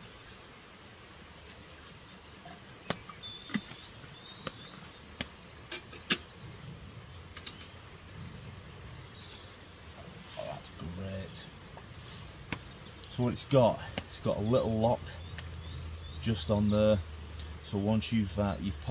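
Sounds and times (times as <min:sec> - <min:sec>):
bird chirping faintly: 0:01.5 - 0:18.9
camping gear clicks and knocks: 0:02.8 - 0:06.3, 0:07.3 - 0:07.8.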